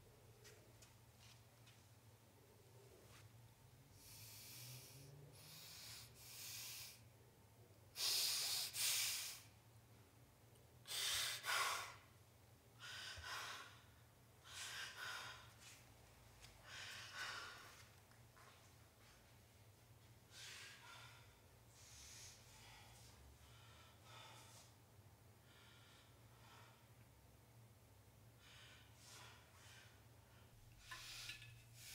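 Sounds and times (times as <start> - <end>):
person breathing heavily: 12.8 - 15.8, 16.6 - 17.9, 20.3 - 27.0, 28.3 - 31.9.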